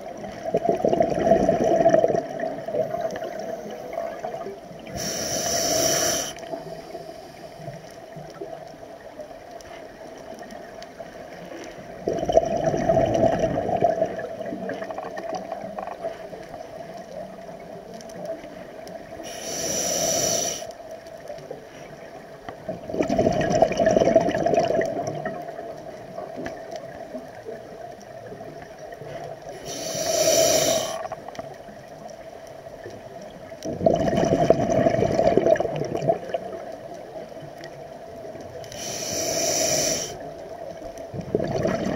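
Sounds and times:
exhaled bubbles gurgling: 0.0s - 20.6s, 22.0s - 32.2s, 32.8s - 41.9s
regulator inhalation hiss: 4.9s - 7.8s, 19.2s - 20.7s, 29.5s - 31.2s, 38.7s - 40.3s.

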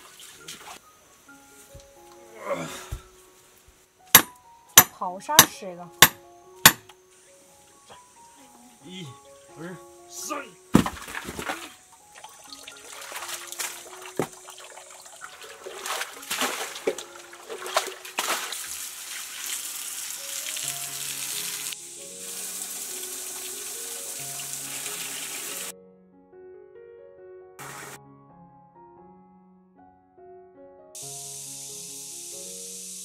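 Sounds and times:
water rushing from pipe: 0.0s - 0.8s, 11.0s - 25.7s
background music: 0.0s - 18.7s, 20.0s - 33.0s
water splashing into stone trough: 10.7s - 20.0s
hands splashing in water: 10.8s - 19.6s.

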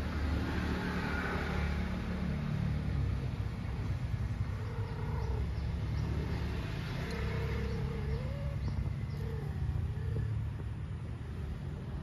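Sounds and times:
cat yowling: 7.0s - 10.4s.

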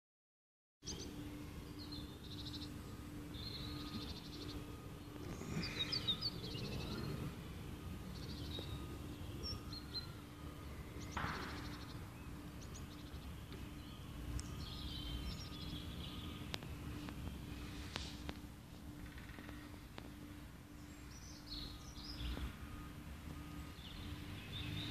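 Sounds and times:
low outdoor rumble: 0.8s - 24.9s
small birds chirping: 0.8s - 24.9s.

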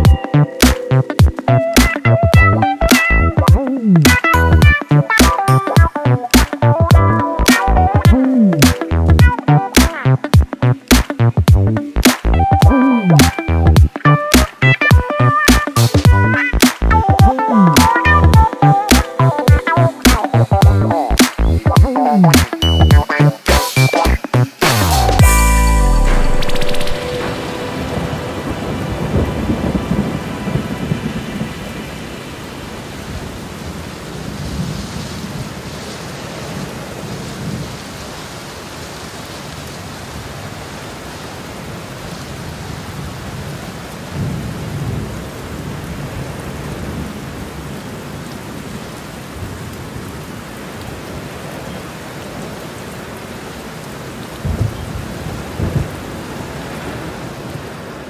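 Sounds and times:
steady rain: 0.0s - 58.0s
thunder rolling: 26.1s - 32.0s, 54.4s - 56.2s.

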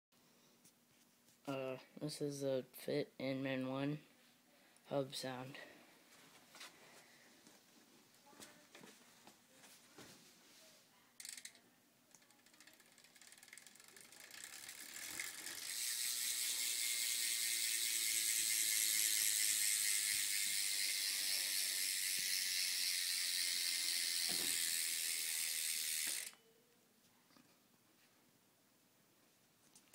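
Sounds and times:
bike hub ratcheting buzz: 11.2s - 26.4s.

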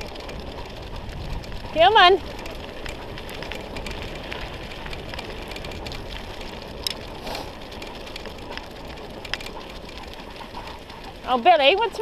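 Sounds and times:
small ticks and rattles: 0.0s - 12.0s
wheels rolling over gravel: 0.0s - 12.0s.

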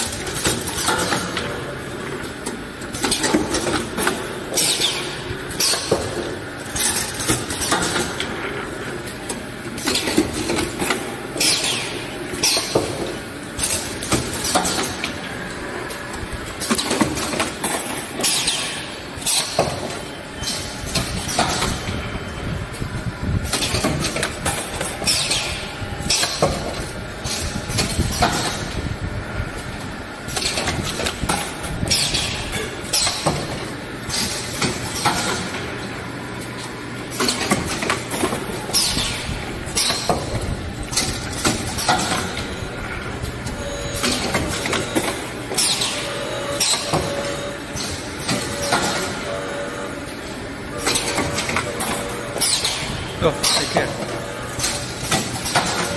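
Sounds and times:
steady machine hum: 0.0s - 55.9s
clamps clacking: 37.1s - 42.6s, 50.8s - 55.9s.

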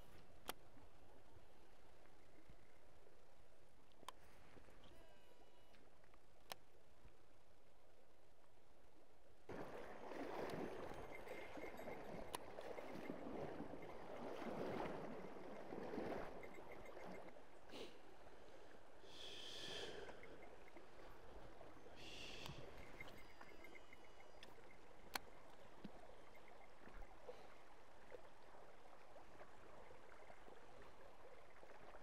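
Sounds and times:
river water sloshing and splashing: 9.5s - 32.0s.

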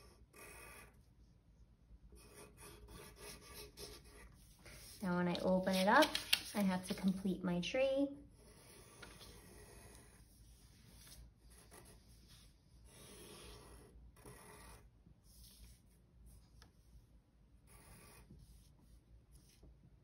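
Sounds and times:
pencil scratching on paper: 0.0s - 1.1s, 2.1s - 6.2s, 8.3s - 17.0s, 17.6s - 19.7s.

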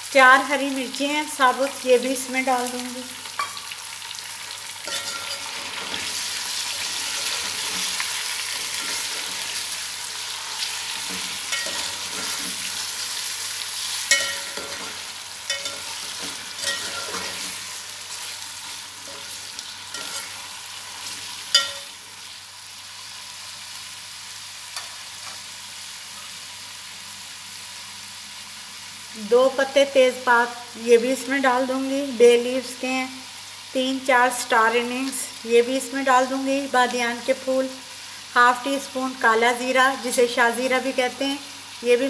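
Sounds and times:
chicken sizzling in hot oil: 0.0s - 42.0s
metal spoon clinking on pot: 4.9s - 5.5s, 11.5s - 12.3s, 14.1s - 14.9s, 15.5s - 17.4s, 21.5s - 22.0s.

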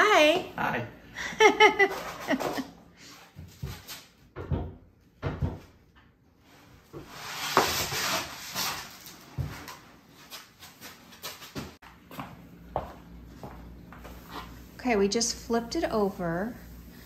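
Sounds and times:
wooden table knocks and bumps: 4.4s - 5.7s.

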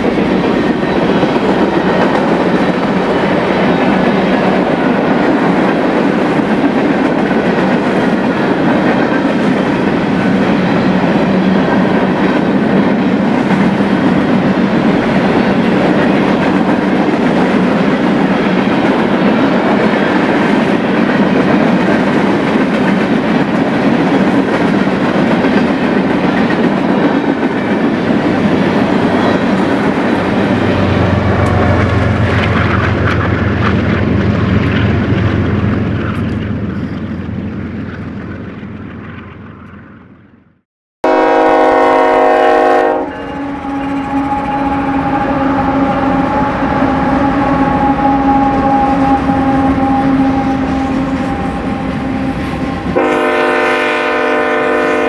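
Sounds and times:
train wheels clattering over rails: 0.0s - 39.4s.

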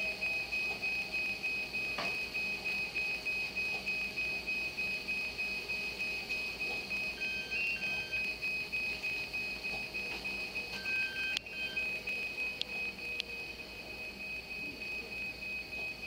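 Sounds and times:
high electronic alarm beeps: 0.0s - 16.0s.

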